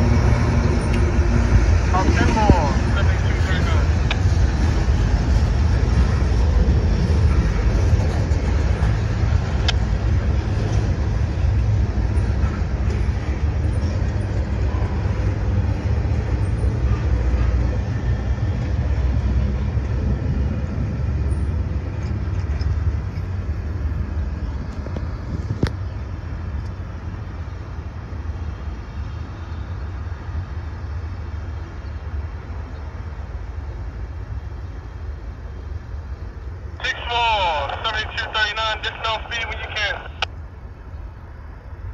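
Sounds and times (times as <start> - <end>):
train wheels rumbling on track: 0.0 - 37.5.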